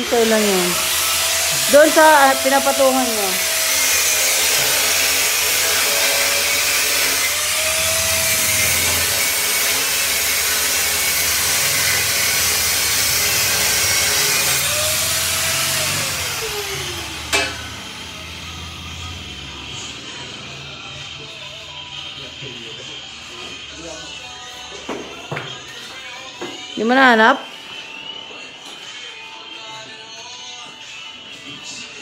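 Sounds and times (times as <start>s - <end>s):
angle grinder cutting steel: 0.0s - 20.3s.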